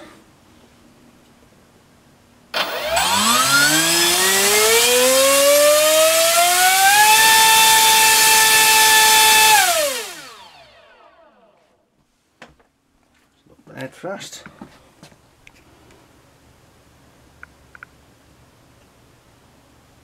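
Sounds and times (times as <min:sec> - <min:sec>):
electric motor and propeller whine: 0:02.6 - 0:11.6.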